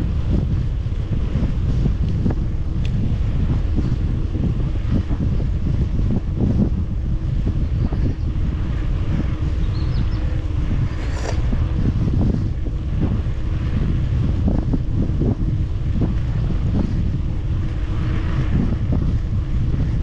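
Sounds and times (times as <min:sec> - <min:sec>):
wind buffeting microphone: 0:00.0 - 0:20.0.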